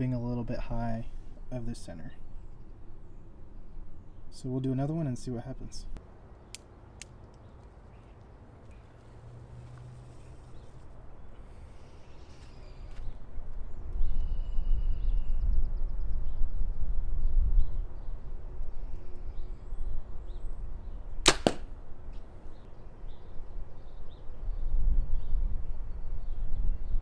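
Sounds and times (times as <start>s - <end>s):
wind rumble on microphone: 13.0s - 21.3s, 22.8s - 27.0s
bow string cracks: 21.2s - 21.7s.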